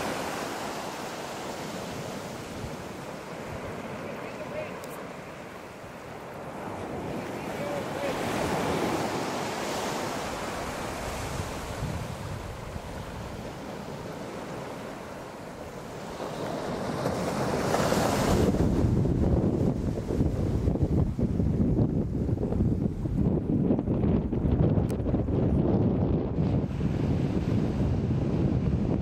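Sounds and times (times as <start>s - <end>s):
surf breaking on beach: 0.0s - 21.8s
wind buffeting microphone: 5.8s - 29.0s.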